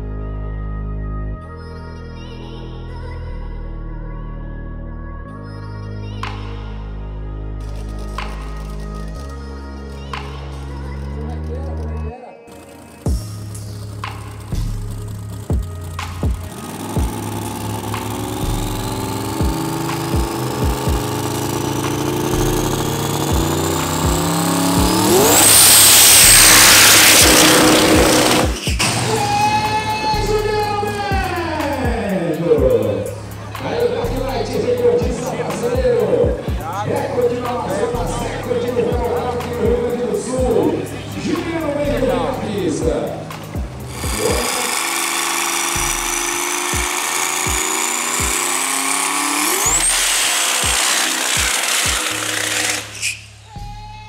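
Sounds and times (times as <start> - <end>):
dragster engine idling and revving: 10.1 - 53.5
tyres spinning in a burnout: 11.2 - 31.8, 43.3 - 53.4
high whine: 12.6 - 31.8, 41.9 - 53.5
steady kick-drum beat: 13.1 - 28.8, 30.2 - 36.9, 38.0 - 40.7, 41.9 - 48.7, 49.5 - 52.0
synth riser climbing in pitch: 14.1 - 30.8, 43.8 - 53.3.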